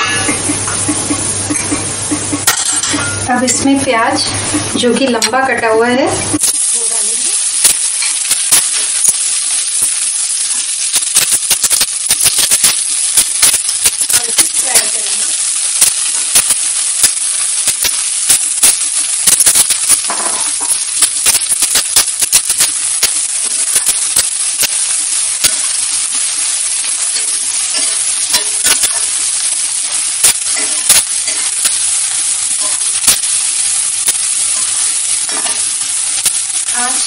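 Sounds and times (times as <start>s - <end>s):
onions sizzling in hot oil: 0.0s - 37.0s
spatula clicking and scraping pan: 27.0s - 29.2s, 29.8s - 31.8s, 34.1s - 35.8s.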